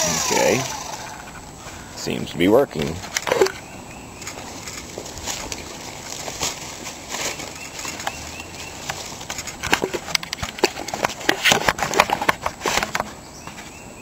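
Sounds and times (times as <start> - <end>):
footsteps on leaf litter: 4.2 - 10.1.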